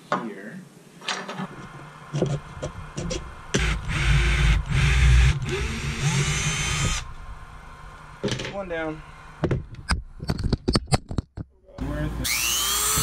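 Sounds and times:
drill motor whine: 0:03.5 - 0:07.9, 0:11.8 - 0:13.0.

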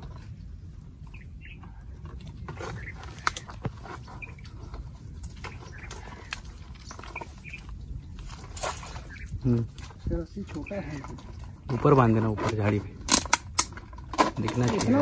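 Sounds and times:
squelching in deep mud: 0:00.0 - 0:15.0
branches snapping: 0:02.2 - 0:04.2, 0:05.2 - 0:11.2.

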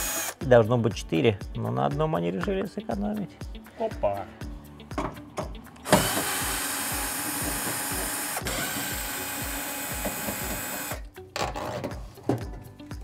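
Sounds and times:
power screwdriver running: 0:00.0 - 0:00.4, 0:05.8 - 0:11.0.

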